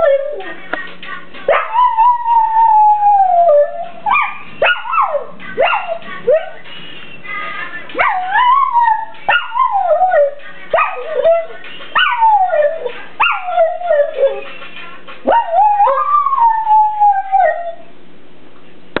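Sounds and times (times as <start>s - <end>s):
dog howling: 0.0s - 0.6s, 1.5s - 6.6s, 8.0s - 14.5s, 15.3s - 17.9s.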